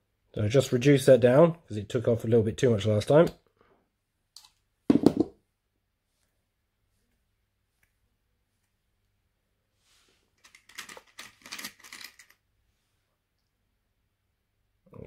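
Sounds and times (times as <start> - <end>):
crimp connectors clattering: 10.4 - 12.4.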